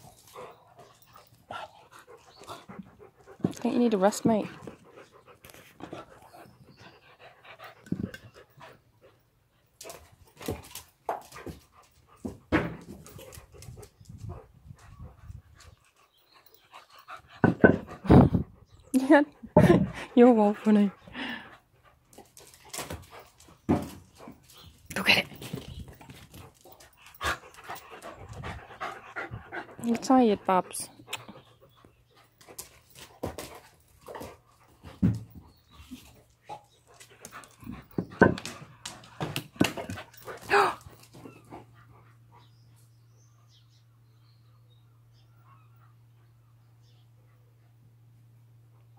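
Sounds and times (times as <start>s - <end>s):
dogs panting: 0.0s - 43.3s.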